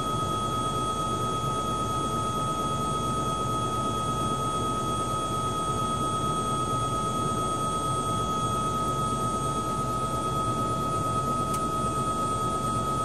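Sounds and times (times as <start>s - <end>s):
helicopter cabin turbine whine: 0.0s - 13.0s
helicopter rotor rumble: 0.0s - 13.0s.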